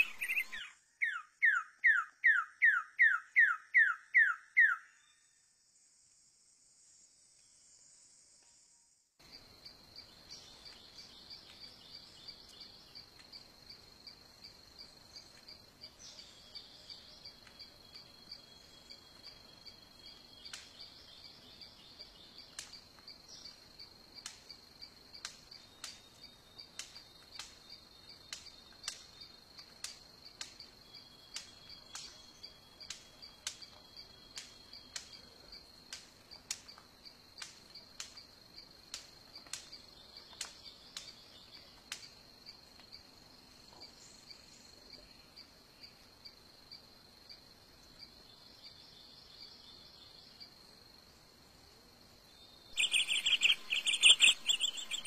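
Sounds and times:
insect chorus trilling: 52.3 - 55.0
sharp clicks: 52.8 - 55.0
thin faint whistle: 52.8 - 55.0.

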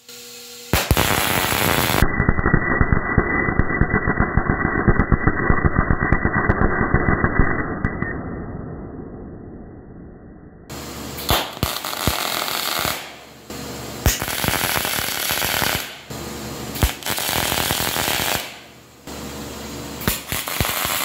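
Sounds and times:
electric arc welding crackle: 0.0 - 7.2, 10.7 - 16.1, 16.8 - 19.2, 20.0 - 21.0
sharp welding pop: 0.7 - 2.2, 11.2 - 13.3, 14.0 - 16.1, 16.8 - 18.7, 20.0 - 21.0.

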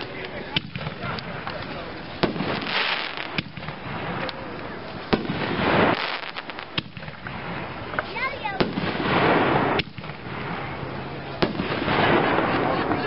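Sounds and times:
firework crackles: 0.0 - 13.0
firework shells bursting: 0.0 - 13.0.

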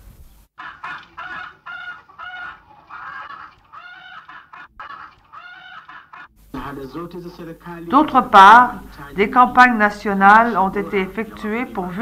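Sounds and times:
chickens clucking: 0.6 - 6.4.

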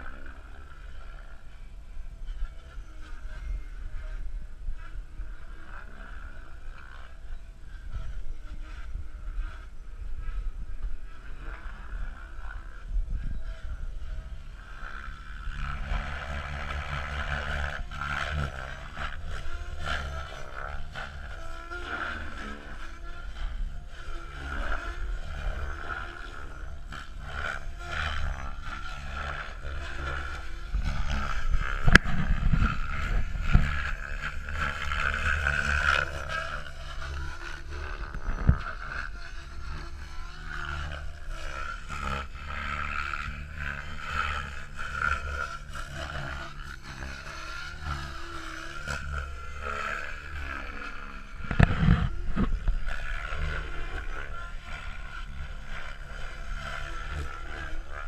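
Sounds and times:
rc helicopter rotor whine: 0.0 - 58.0
wind on microphone: 0.0 - 58.0.

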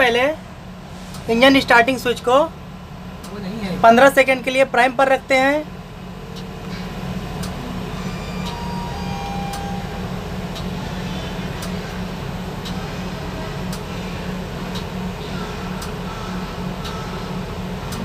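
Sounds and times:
machinery hum in locomotive cab: 0.0 - 18.0
faint ticking: 8.4 - 12.9, 13.5 - 18.0.

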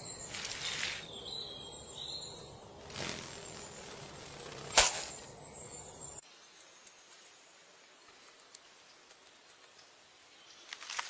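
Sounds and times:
bird chirps: 0.0 - 7.5.

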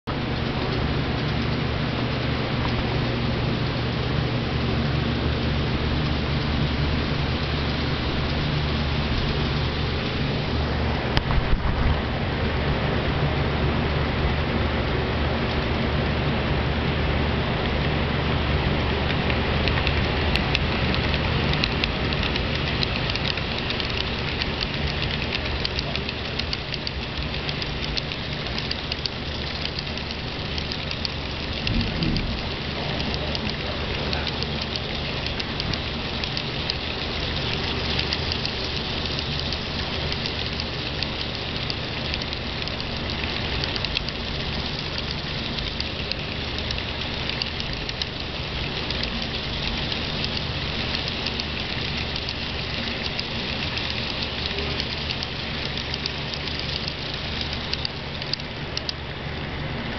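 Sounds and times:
low steady hum: 0.0 - 59.9
model train wheels clattering: 19.0 - 58.9.

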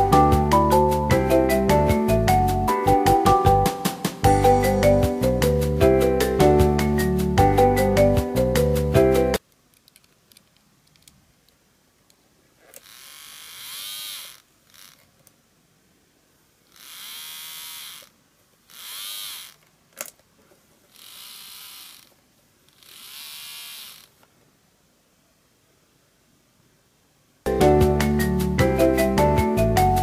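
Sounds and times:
model train gear whine: 12.7 - 15.0, 16.7 - 18.1, 18.7 - 19.6, 20.9 - 24.2.

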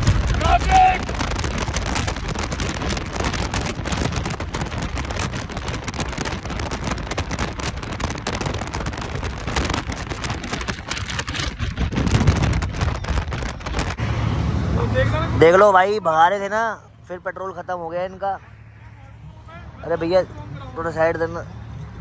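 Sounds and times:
rain crackling on microphone: 0.0 - 14.0
motorcycle wind and road noise: 0.0 - 22.0.

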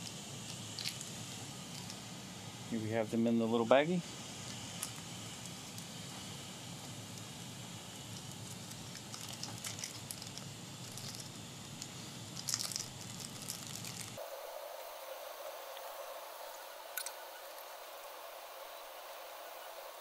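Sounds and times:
background hiss: 0.0 - 20.0
plastic bag crinkling: 8.3 - 11.3, 12.3 - 14.2.

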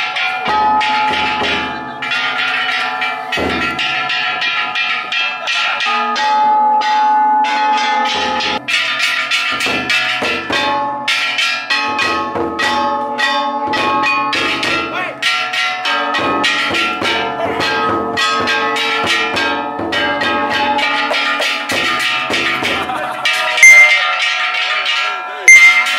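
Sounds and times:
gongs clanging: 0.0 - 25.9
large drum beating: 0.4 - 5.1, 8.1 - 23.4.

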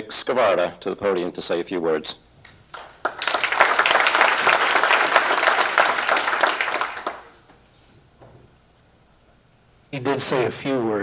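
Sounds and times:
audience applauding: 2.7 - 7.4.

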